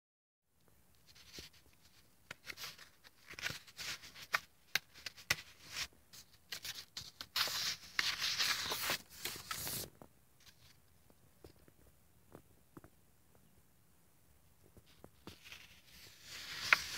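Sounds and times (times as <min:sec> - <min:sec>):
paper ticks and crinkles: 0:00.9 - 0:11.7, 0:14.8 - 0:16.9
page turning rustle: 0:01.1 - 0:10.8, 0:14.9 - 0:16.9.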